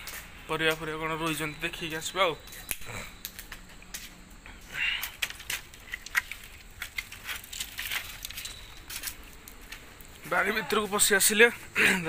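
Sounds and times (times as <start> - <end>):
footsteps in dry brush: 4.8 - 10.4
brush rustle: 4.8 - 11.8.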